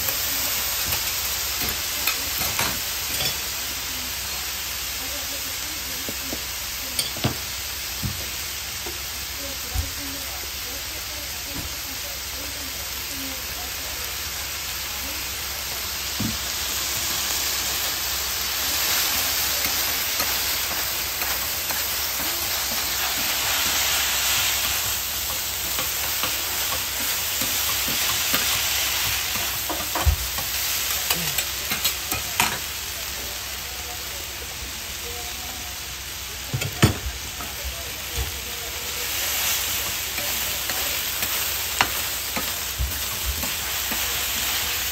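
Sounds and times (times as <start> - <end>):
noodles sizzling on griddle: 0.0 - 44.9
spatula clacks: 19.3 - 32.6.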